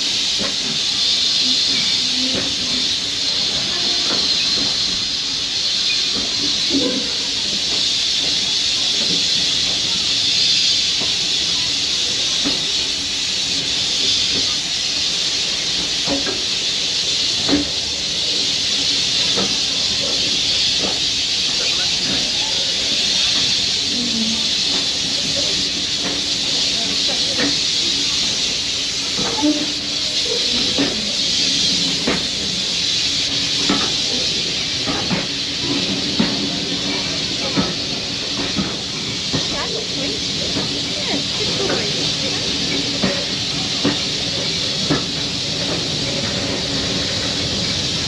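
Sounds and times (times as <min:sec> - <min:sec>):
steam locomotive hissing: 0:00.0 - 0:48.0
faint voices: 0:33.8 - 0:45.2.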